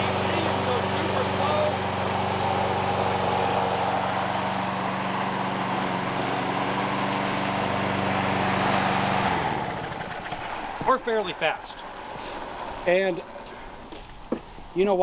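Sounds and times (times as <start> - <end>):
lawn mower engine running: 0.0 - 14.8.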